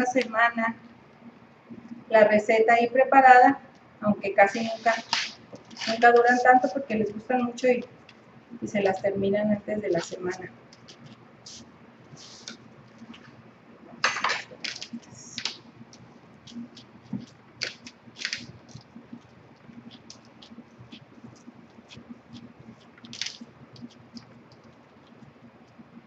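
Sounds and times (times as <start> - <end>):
faint low hum: 0.0 - 26.0
spoon scraping a metal sheet: 4.4 - 6.4
hands pressing sticky mixture: 9.8 - 13.3, 14.0 - 26.0.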